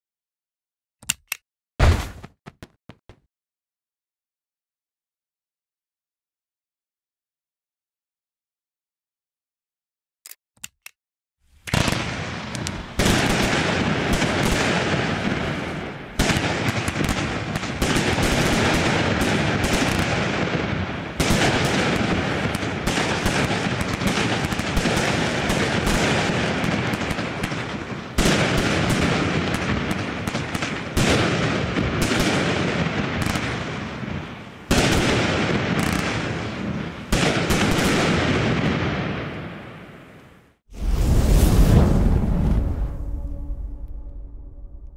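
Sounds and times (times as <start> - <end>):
fireworks launches and bursts: 11.7 - 40.1, 40.7 - 43.2.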